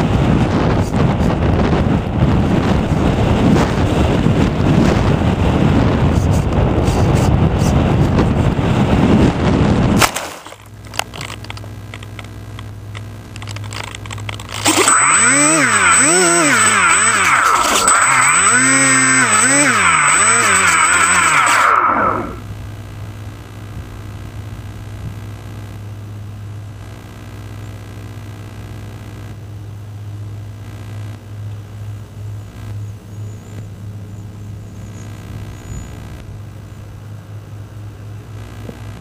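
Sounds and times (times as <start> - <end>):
wind rushing over microphone: 0.0 - 10.0
thin high whine: 11.6 - 29.4, 30.2 - 39.0
loud rising and falling tone: 14.5 - 22.5.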